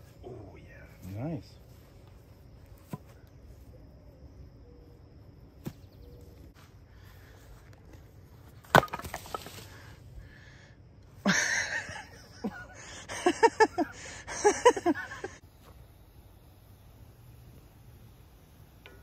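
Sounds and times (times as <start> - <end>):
axe splitting firewood: 8.6 - 9.7.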